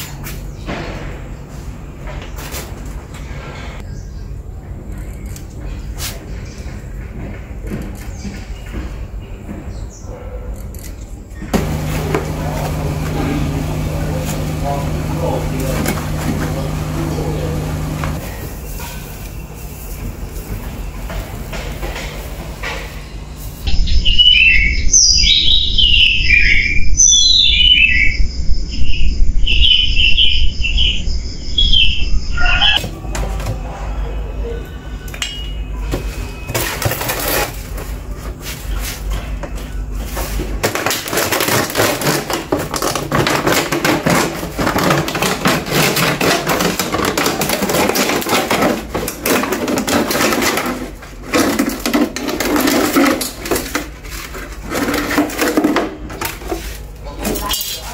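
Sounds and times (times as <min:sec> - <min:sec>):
rustling and scraping: 0:11.5 - 0:23.7, 0:35.8 - 0:57.9
bird chirping: 0:23.7 - 0:32.8.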